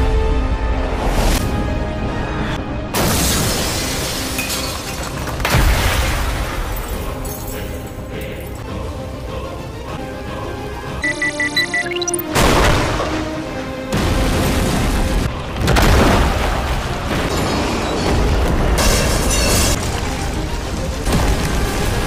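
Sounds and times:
dramatic music: 0.0 - 4.4, 5.5 - 22.0
rumble of fire and debris: 2.9 - 7.5, 13.8 - 22.0
electronic timer beeping: 11.0 - 12.3.

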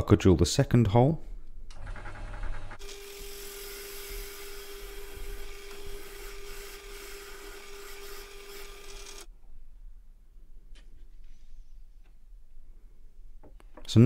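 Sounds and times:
drill press motor hum: 1.8 - 9.3
drill bit cutting and grinding wood: 2.8 - 9.3.

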